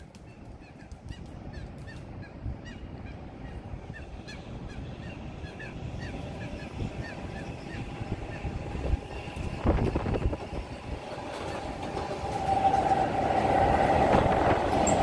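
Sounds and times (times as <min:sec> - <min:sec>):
birds calling: 0:00.0 - 0:09.8
approaching train rumble: 0:00.0 - 0:15.0.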